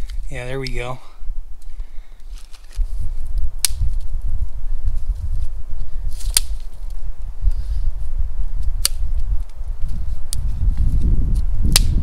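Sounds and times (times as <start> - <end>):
campfire crackling: 0.0 - 12.0
fire pops: 2.3 - 5.0, 6.1 - 7.0, 8.6 - 12.0.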